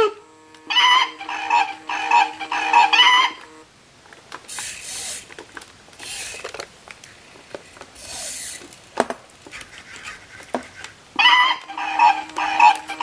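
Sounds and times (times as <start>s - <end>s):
small motors whirring: 0.0s - 3.7s, 4.5s - 5.4s, 6.0s - 6.7s, 7.6s - 8.8s, 11.2s - 13.0s.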